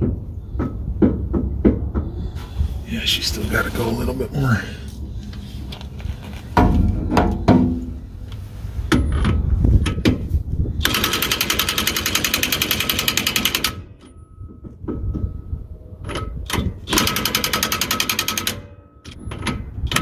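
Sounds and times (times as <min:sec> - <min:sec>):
tool knocking and clanking: 0:06.6 - 0:08.0.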